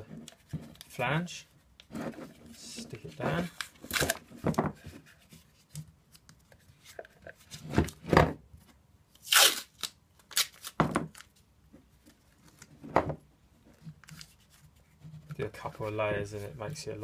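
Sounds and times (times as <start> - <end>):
masking tape tearing: 9.2 - 10.8.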